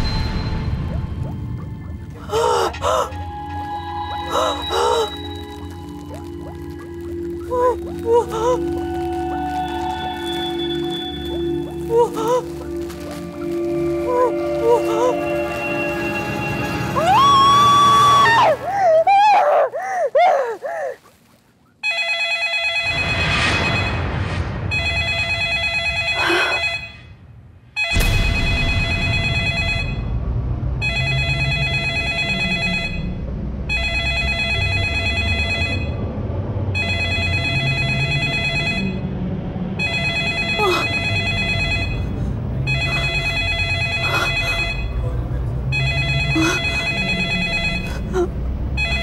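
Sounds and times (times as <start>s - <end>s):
low rumbling drone: 0.0s - 18.7s, 27.2s - 33.8s, 34.6s - 36.9s, 37.6s - 49.0s
telephone ringing: 21.8s - 23.9s, 39.8s - 42.1s, 45.8s - 47.9s.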